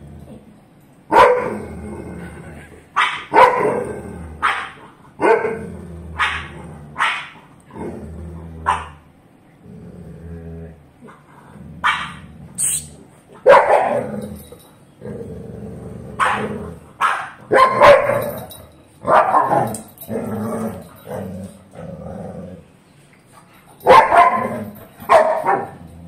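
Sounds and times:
dogs growling: 0.0s - 0.6s, 1.4s - 26.0s
dogs barking: 1.1s - 1.6s, 3.0s - 3.8s, 4.4s - 5.6s, 6.2s - 7.5s, 8.6s - 9.0s, 11.8s - 12.2s, 13.4s - 14.2s, 16.2s - 19.8s, 23.8s - 25.8s.

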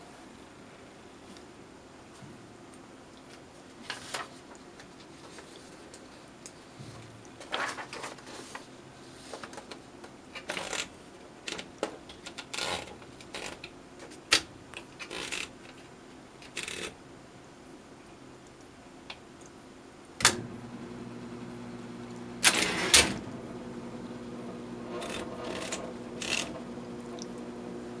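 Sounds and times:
paper rustling into typewriter: 3.8s - 5.6s, 7.4s - 9.8s, 22.4s - 23.2s, 24.9s - 26.6s
typewriter carriage clicks: 22.4s - 23.2s, 24.9s - 26.6s.

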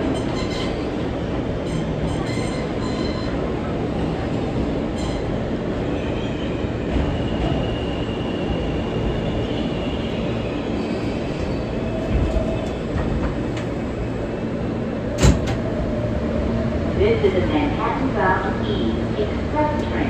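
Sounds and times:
subway car rumbling on rails: 0.0s - 20.0s.

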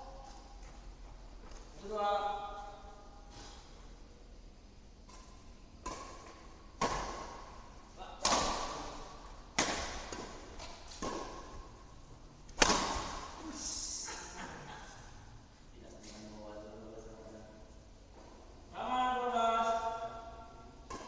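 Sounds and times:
rackets hitting shuttlecock: 5.0s - 11.8s, 12.4s - 13.4s, 20.8s - 21.0s.

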